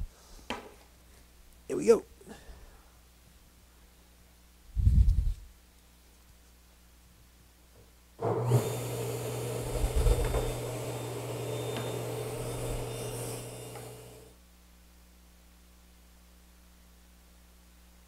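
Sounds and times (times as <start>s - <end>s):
table saw cutting wood: 8.2s - 14.3s.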